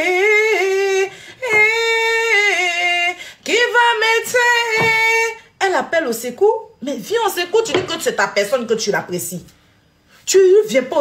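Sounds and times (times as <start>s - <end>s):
woman singing unaccompanied: 0.0s - 5.8s.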